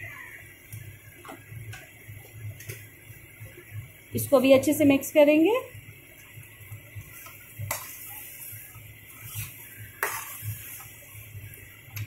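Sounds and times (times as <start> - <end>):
metal spoon scraping mash in pan: 9.2 - 10.9.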